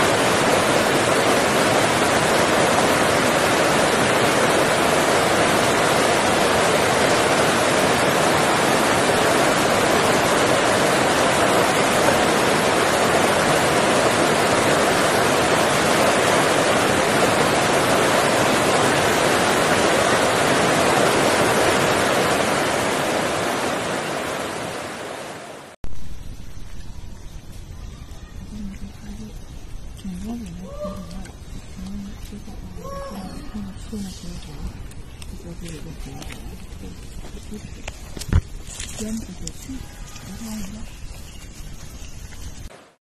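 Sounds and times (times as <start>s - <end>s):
steady rushing noise: 0.0s - 26.6s.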